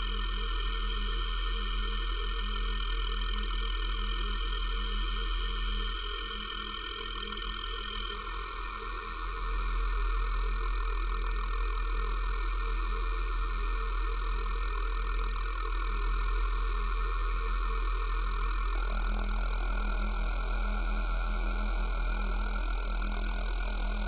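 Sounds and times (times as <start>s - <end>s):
deep steady hum: 16.4s - 24.0s.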